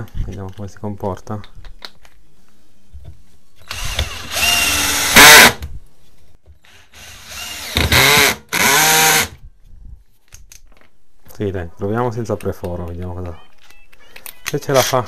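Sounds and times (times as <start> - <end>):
cordless drill motor whine: 3.6 - 5.6, 6.7 - 9.3.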